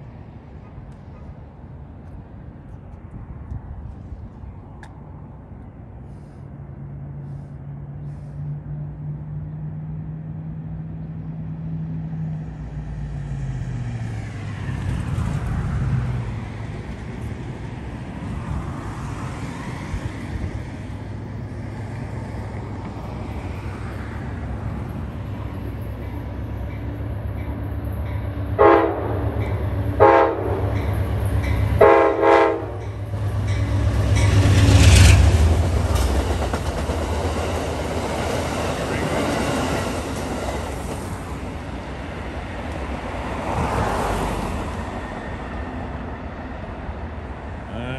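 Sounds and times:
locomotive rumble: 1.8 - 47.9
freight train wheels clacking: 22.4 - 41.6
train horn short blasts: 28.6 - 29.4, 30.0 - 30.7, 31.8 - 33.0.

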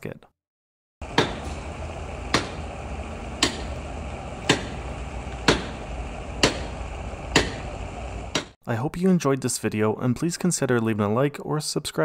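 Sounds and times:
hand tool striking car wheel: 1.0 - 2.8, 3.4 - 3.8, 4.4 - 7.7, 8.3 - 8.6.

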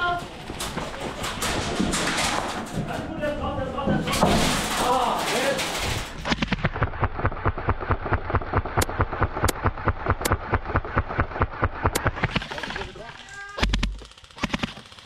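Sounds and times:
airsoft gun full-auto burst: 13.6 - 15.0.

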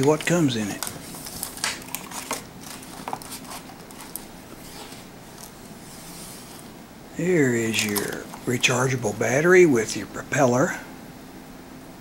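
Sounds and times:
faint handling noise: 0.0 - 6.8, 7.4 - 9.0
packaging rustling: 0.0 - 6.8, 7.4 - 9.0.

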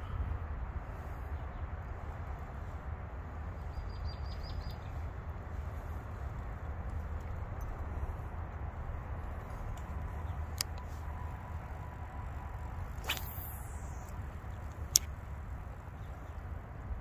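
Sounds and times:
low outdoor rumble: 0.0 - 17.0
brief swish: 13.0 - 14.1.

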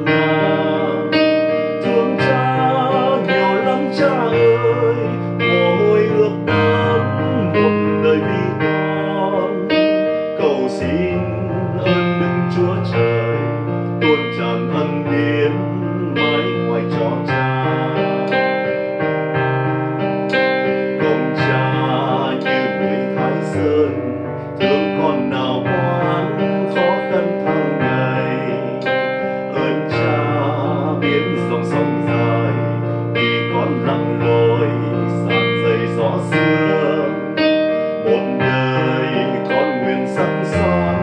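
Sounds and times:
man singing: 0.0 - 18.9, 20.3 - 41.0
digital piano: 0.0 - 41.0.

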